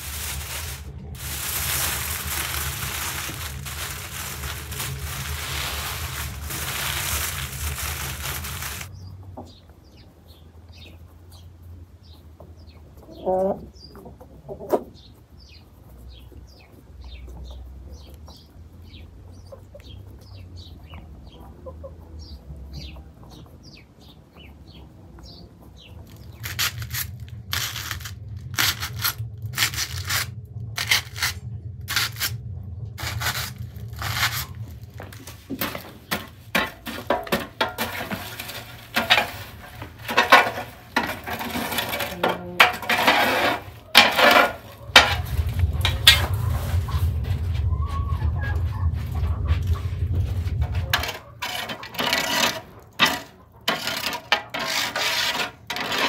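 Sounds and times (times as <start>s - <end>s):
low hum: 0.0s - 9.0s, 26.3s - 51.4s.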